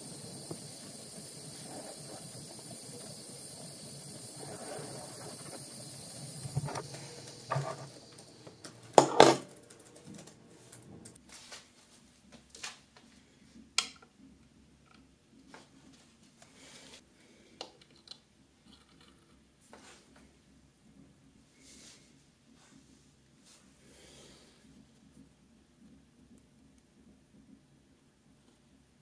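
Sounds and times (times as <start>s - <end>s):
gas torch hissing: 0.0s - 11.2s.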